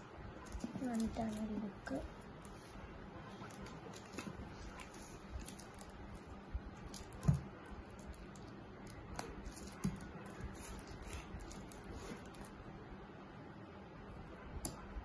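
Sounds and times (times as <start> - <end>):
plastic wrap crinkling: 0.5 - 2.0, 3.4 - 7.4, 8.0 - 12.6.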